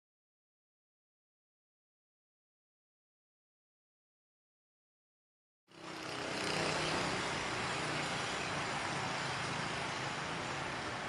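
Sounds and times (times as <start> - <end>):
rushing outdoor background noise: 5.7 - 11.0.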